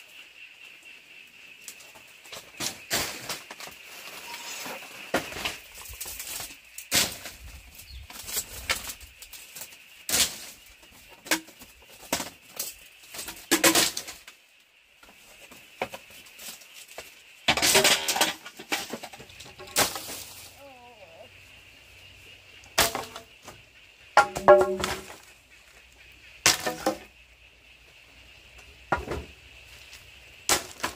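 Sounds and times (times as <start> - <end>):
bamboo slats knocking and clattering: 8.1 - 14.4, 15.0 - 20.6, 22.7 - 25.3, 26.4 - 27.1, 28.9 - 29.4, 30.5 - 30.9.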